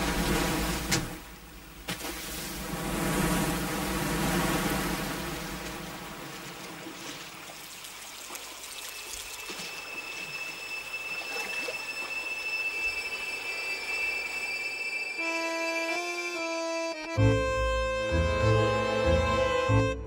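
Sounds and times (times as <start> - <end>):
stream water rushing and splashing: 0.0 - 14.7
high sustained note: 9.5 - 18.0.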